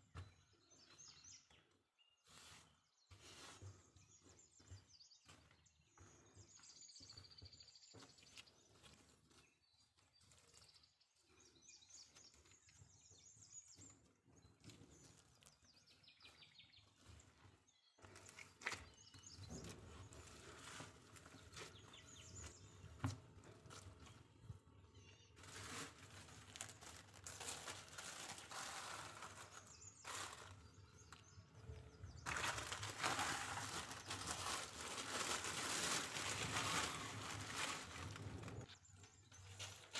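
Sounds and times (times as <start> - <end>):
plastic bag crinkling: 25.4 - 30.8, 32.2 - 38.8.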